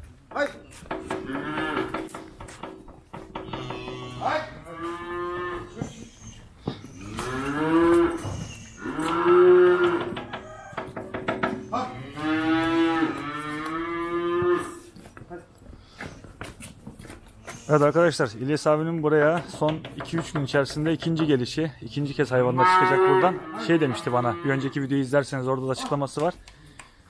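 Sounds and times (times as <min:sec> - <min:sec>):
calves mooing: 0:01.1 - 0:02.2, 0:03.3 - 0:14.9, 0:22.5 - 0:24.8.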